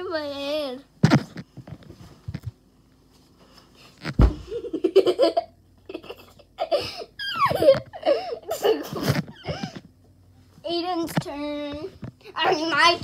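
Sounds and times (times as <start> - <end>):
child landing on bed thud: 4.1 - 4.5
children laughing: 4.4 - 9.8.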